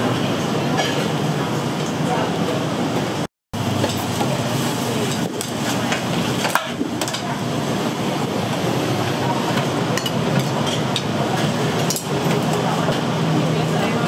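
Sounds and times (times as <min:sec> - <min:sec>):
busy eatery din: 0:00.0 - 0:14.0.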